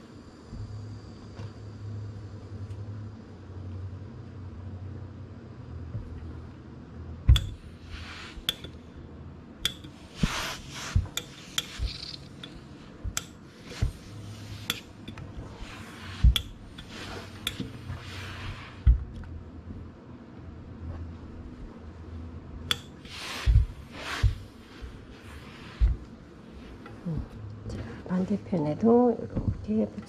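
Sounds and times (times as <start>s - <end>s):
iron knocks and clicks: 7.3s - 7.7s, 9.6s - 10.4s, 11.0s - 15.3s, 16.2s - 17.8s
steam iron hissing: 9.7s - 18.9s, 23.0s - 26.8s
dull thud: 18.8s - 19.2s.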